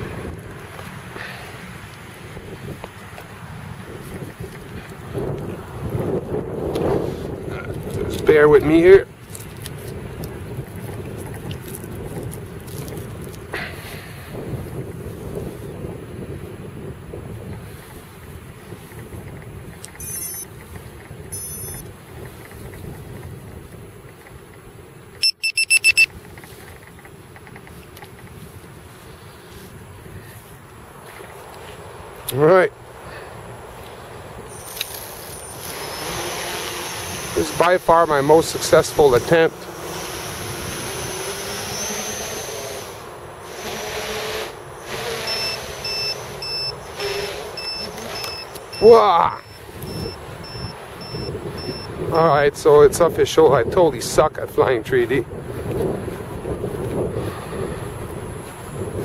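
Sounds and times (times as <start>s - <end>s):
wind noise on microphone: 0.0s - 33.3s, 33.9s - 59.0s
quadcopter motors whirring: 19.0s - 23.4s, 34.4s - 52.3s
electronic beeps: 20.0s - 20.5s, 21.3s - 21.9s, 25.2s - 26.1s, 45.2s - 52.0s.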